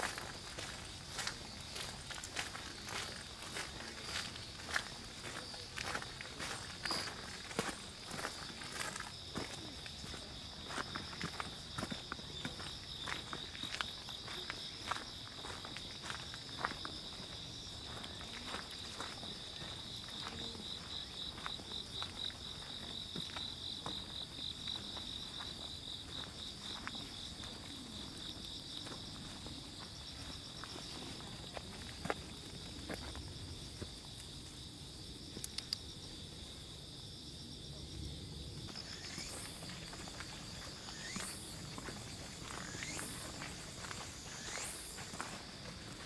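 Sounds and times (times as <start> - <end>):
footsteps on grass and gravel: 0.0 - 35.4, 38.6 - 46.0
high-pitched insect drone: 38.8 - 45.3.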